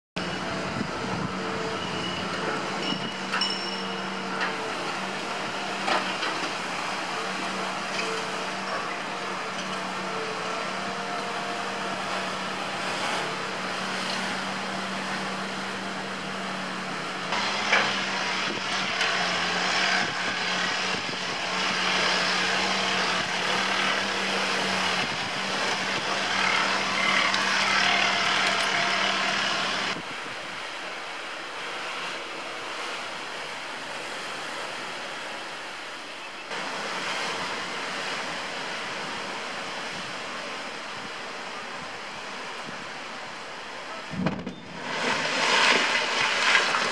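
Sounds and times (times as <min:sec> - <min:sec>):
outdoor noise rush: 0:00.2 - 0:46.9
excavator engine running: 0:04.0 - 0:30.0.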